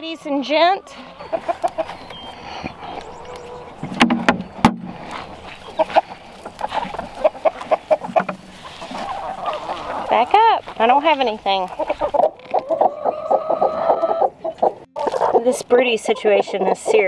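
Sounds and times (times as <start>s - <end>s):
chickens clucking: 0.0s - 17.0s
sharp knocks: 3.8s - 4.9s.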